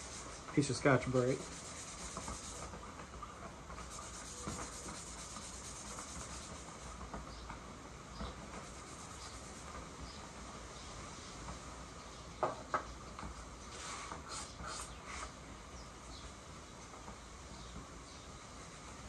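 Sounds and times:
scrubbing metal with abrasive pad: 0:00.0 - 0:02.8, 0:03.8 - 0:06.9.

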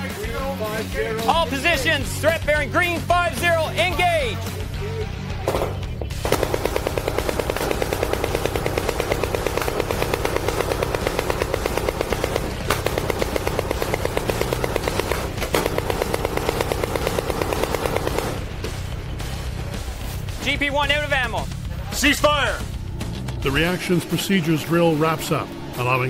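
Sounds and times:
machine gun automatic fire: 0:06.2 - 0:18.6.

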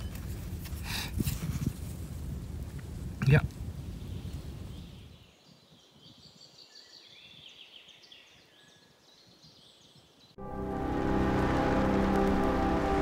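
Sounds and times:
wind buffeting microphone: 0:00.0 - 0:06.3
faint birds chirping: 0:03.8 - 0:10.4.

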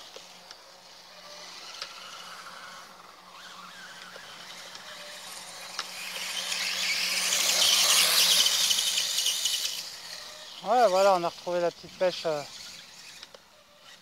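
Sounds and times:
electric motor whining: 0:00.0 - 0:14.0.

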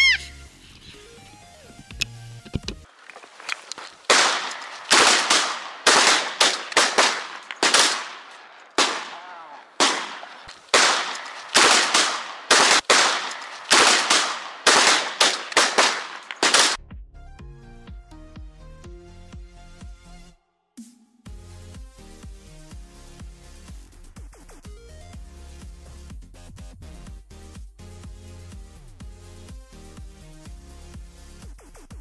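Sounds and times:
shotgun shots: 0:04.0 - 0:16.8.

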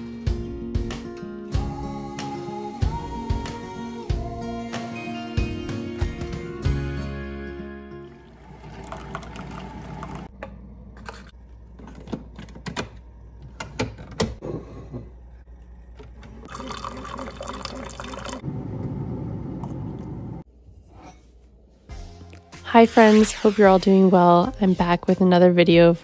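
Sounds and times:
coffee pouring into metal tumbler: 0:08.1 - 0:10.3, 0:16.4 - 0:18.4.

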